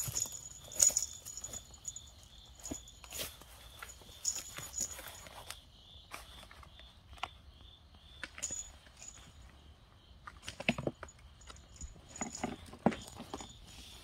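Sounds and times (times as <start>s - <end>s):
leashes dragging: 0.0s - 5.3s, 10.4s - 14.0s
cricket chirping: 0.0s - 14.0s
kittens scuffling on blanket: 2.6s - 5.6s.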